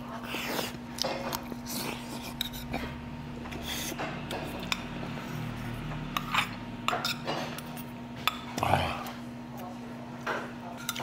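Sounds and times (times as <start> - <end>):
utensils clinking against dishes: 6.1 - 9.2, 10.2 - 11.0.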